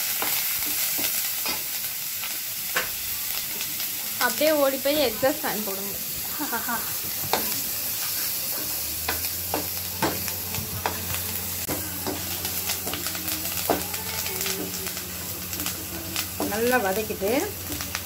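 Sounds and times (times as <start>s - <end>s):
leaves and chillies sizzling in oil: 0.0s - 18.0s
exhaust fan humming: 8.5s - 18.0s.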